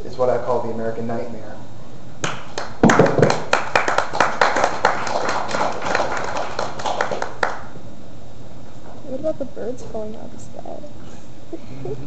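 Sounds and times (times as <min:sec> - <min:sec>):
audience clapping: 0:02.2 - 0:07.8.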